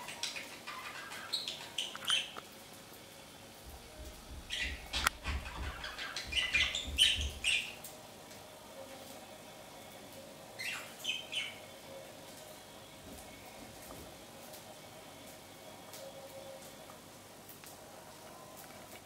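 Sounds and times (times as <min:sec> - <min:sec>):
budgerigars chirping: 0:00.0 - 0:02.4, 0:04.5 - 0:07.8, 0:10.6 - 0:11.6.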